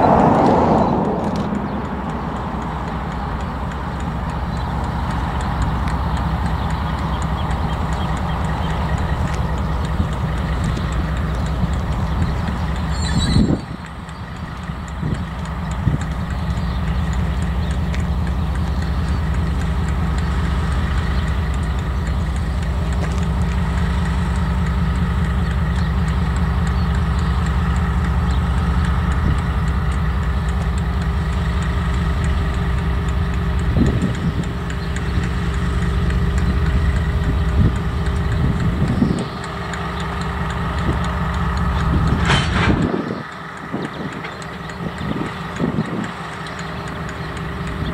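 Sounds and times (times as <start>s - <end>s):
diesel locomotive engine drone: 0.0s - 47.9s.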